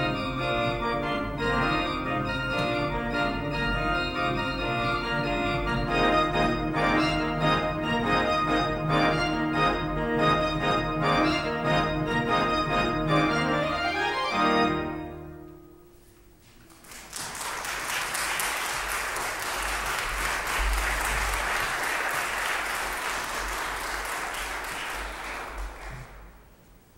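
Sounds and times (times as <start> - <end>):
pipe organ playing: 0.0 - 16.0
audience applause: 16.7 - 26.4.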